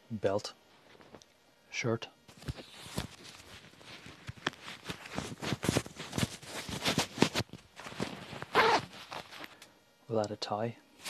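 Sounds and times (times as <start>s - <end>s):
shirt fabric rustling: 2.3s - 9.6s
trouser zipper: 8.4s - 9.0s.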